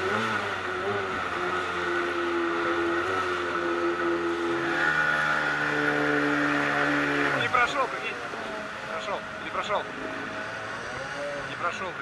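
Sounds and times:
boat motor engine note: 0:00.0 - 0:11.7.

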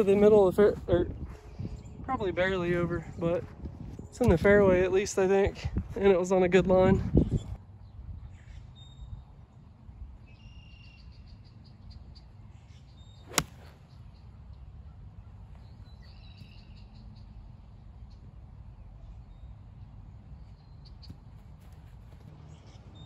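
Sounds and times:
golf club striking ball: 0:13.3 - 0:13.7.

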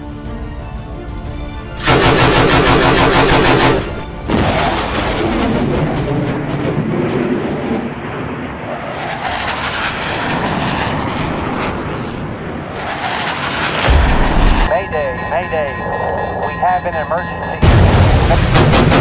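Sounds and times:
jet engine rushing: 0:04.4 - 0:19.0.

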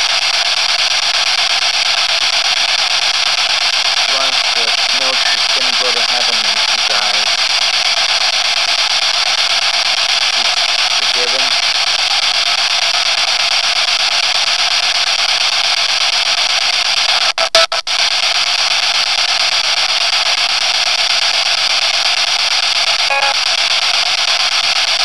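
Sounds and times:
loud static hiss: 0:00.0 - 0:25.0.

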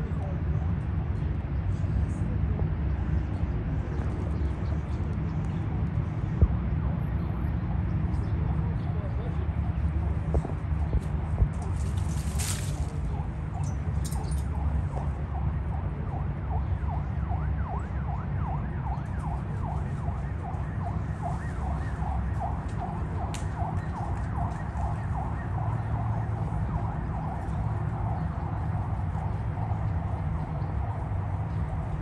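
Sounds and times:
steady low rumble: 0:00.0 - 0:18.5, 0:19.2 - 0:32.0
emergency siren yelping: 0:13.5 - 0:30.0.

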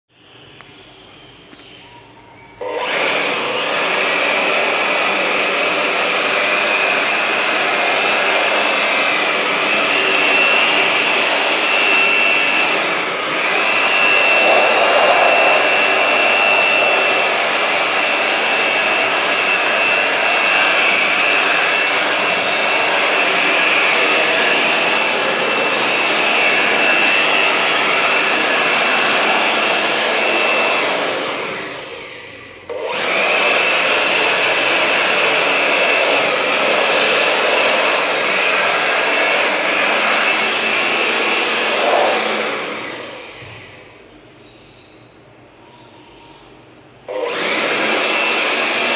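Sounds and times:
electric blower whining: 0:02.6 - 0:44.0, 0:47.1 - 0:48.9.

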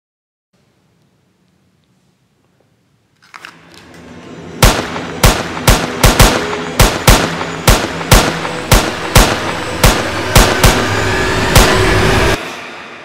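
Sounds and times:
low rumble: 0:03.8 - 0:12.5
handgun shots: 0:04.6 - 0:12.0.

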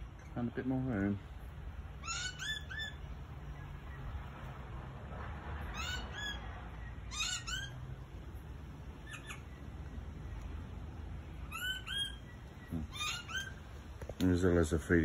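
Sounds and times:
parrots chirping: 0:01.2 - 0:04.6, 0:05.6 - 0:14.0.

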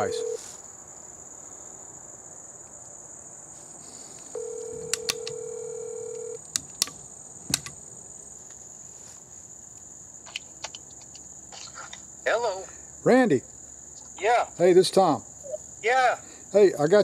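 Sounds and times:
telephone ringback tone: 0:00.0 - 0:00.4, 0:04.4 - 0:06.4
insects chirring: 0:00.0 - 0:17.0
sharp clicks: 0:04.8 - 0:05.4, 0:06.4 - 0:07.8, 0:10.2 - 0:11.3.

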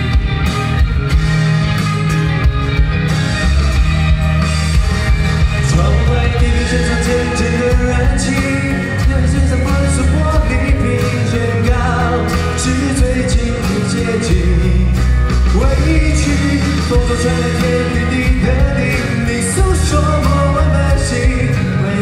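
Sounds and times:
amplified rock band playing: 0:00.0 - 0:22.0
person singing through pa: 0:05.6 - 0:22.0.

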